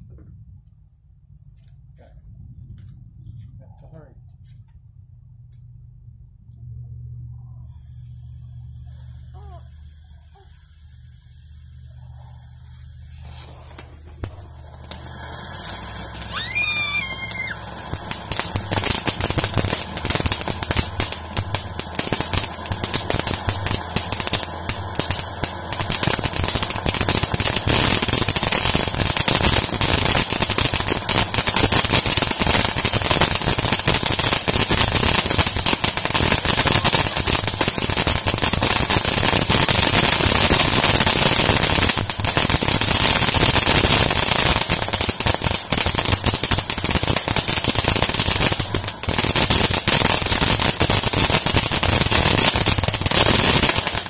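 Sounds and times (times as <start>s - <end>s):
fireworks crackling and popping: 1.4s - 4.7s, 7.5s - 54.0s
crackling fountain firework: 7.5s - 54.0s.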